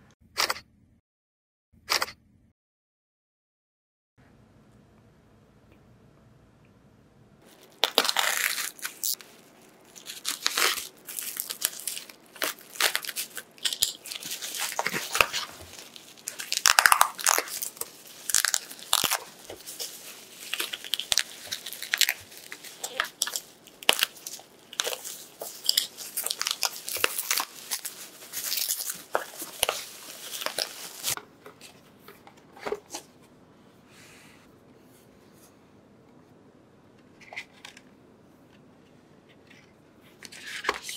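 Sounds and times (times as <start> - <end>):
bubble wrap crinkling and tearing: 7.4 - 31.2.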